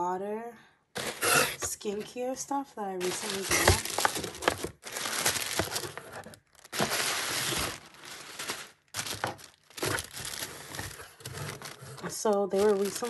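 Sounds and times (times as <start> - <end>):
sharp paper crackles: 3.0 - 13.0
tissue paper crinkling: 3.0 - 13.0.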